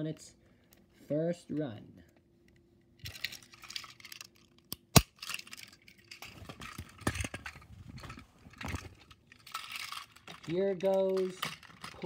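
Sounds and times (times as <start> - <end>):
faint steady hum: 0.0 - 12.0
plastic toy rustling and clattering: 3.0 - 12.0.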